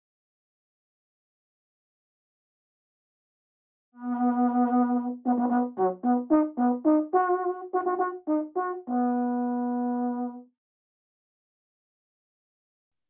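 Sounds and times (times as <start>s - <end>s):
solo brass instrument playing: 4.0s - 10.4s.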